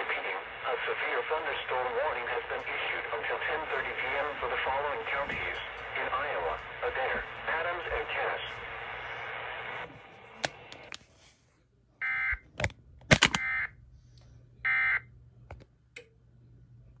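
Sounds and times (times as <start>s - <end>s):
sharp clicks: 12.6s - 13.5s.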